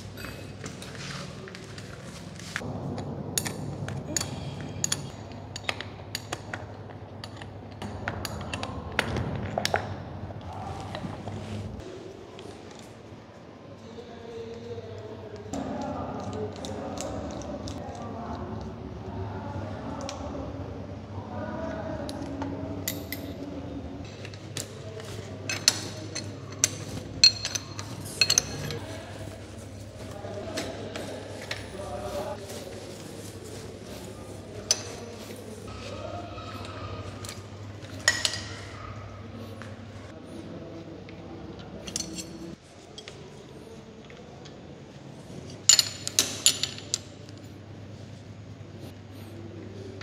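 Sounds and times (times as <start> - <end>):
spanner clinking on metal: 25.5 - 28.9, 41.8 - 43.1.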